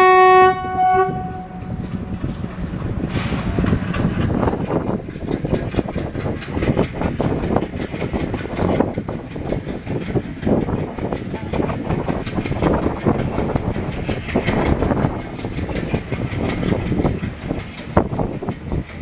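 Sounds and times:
train rumbling past: 0.0s - 19.0s
train wheels clattering over rail joints: 1.2s - 19.0s.

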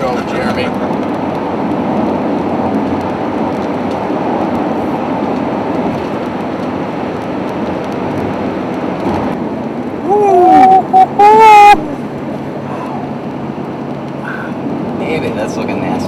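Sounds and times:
rain ticking on windshield: 0.0s - 10.8s
tyres on wet pavement: 0.0s - 16.0s
wind: 0.0s - 16.0s.

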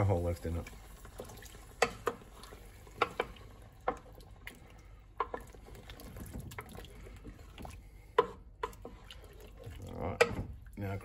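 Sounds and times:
wooden spoon scraping a pan: 7.0s - 10.4s.

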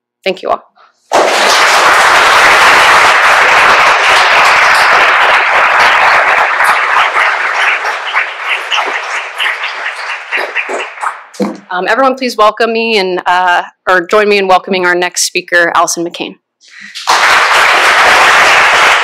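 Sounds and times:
audience applauding: 1.1s - 11.6s, 16.7s - 19.0s.

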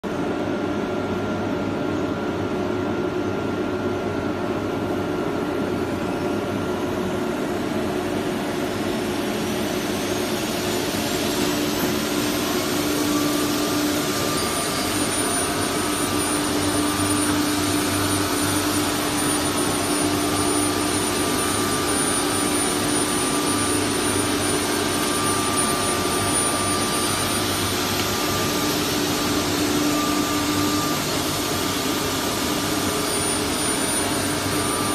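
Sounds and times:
thin high motor whine: 0.1s - 34.9s
wood router machine noise: 9.2s - 34.9s.

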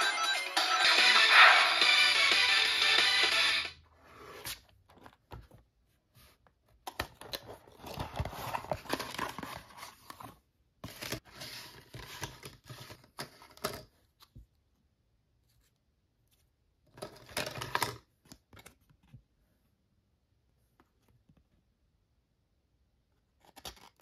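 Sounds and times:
cardboard rustling and sliding: 7.6s - 10.4s.

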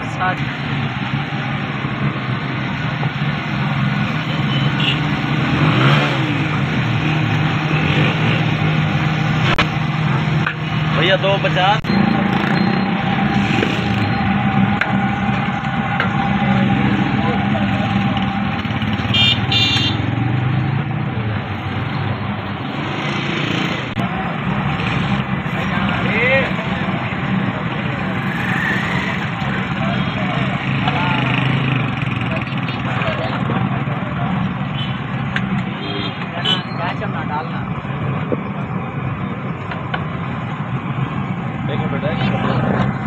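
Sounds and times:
engine and traffic hum: 0.0s - 43.0s
street noise: 0.0s - 43.0s
vehicle revving or passing: 0.0s - 43.0s
vehicle engine running: 4.8s - 20.2s.

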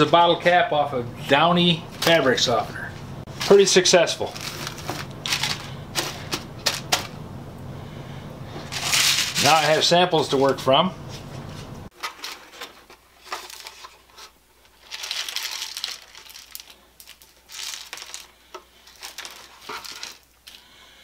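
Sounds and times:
plastic chips pattering: 3.3s - 7.2s, 11.9s - 21.0s
plastic tray crinkling: 3.3s - 7.2s, 11.9s - 20.7s.

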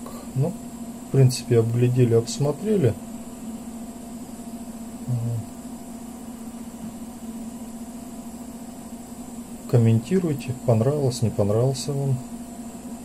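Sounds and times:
low electrical hum: 0.0s - 13.0s
man's voice murmuring: 0.1s - 0.6s, 5.0s - 5.5s.

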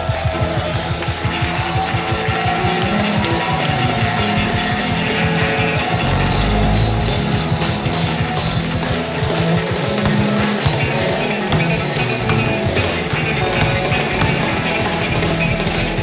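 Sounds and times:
live gospel band music: 0.0s - 16.0s
people clapping: 0.0s - 16.0s
sharp claps or cymbal hits: 0.0s - 16.0s
choir singing: 3.3s - 8.8s.

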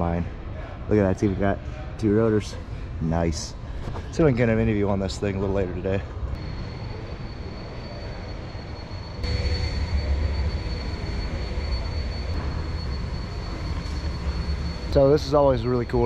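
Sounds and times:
busy exhibition hall rumble: 0.0s - 16.0s
faint high whine: 6.2s - 16.0s.

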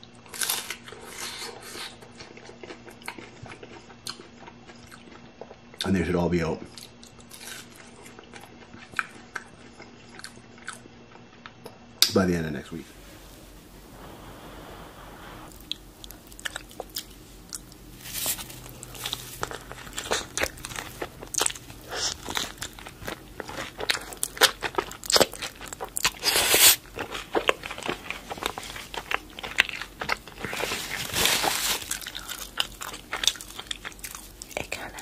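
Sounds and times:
crunching crispy taco shell: 15.5s - 35.0s.

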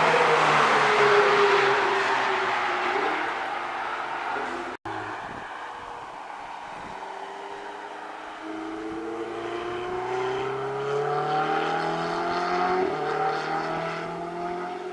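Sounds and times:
car engine accelerating hard: 6.1s - 14.9s.

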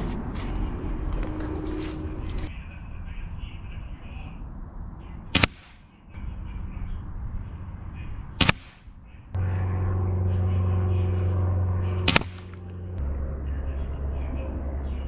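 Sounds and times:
steady low hum: 0.0s - 15.0s
air rifle shots: 5.3s - 5.8s, 8.4s - 8.9s, 12.1s - 12.6s.

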